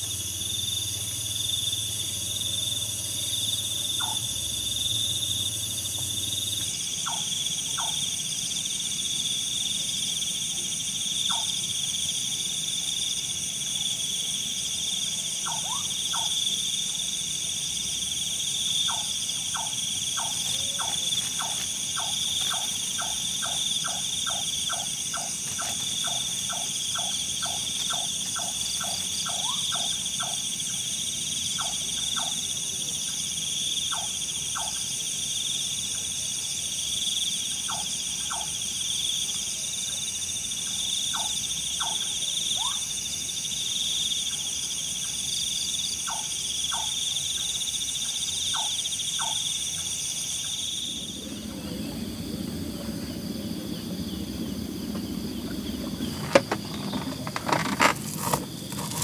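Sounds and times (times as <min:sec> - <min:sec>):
insects trilling: 0:00.0 - 0:59.0.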